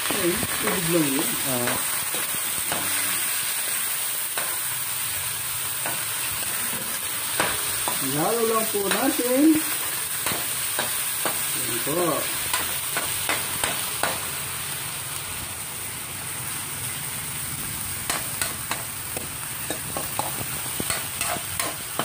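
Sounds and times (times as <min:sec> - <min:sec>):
chicken sizzling in hot oil: 0:00.0 - 0:22.0
metal spoon scraping pan: 0:19.7 - 0:22.0.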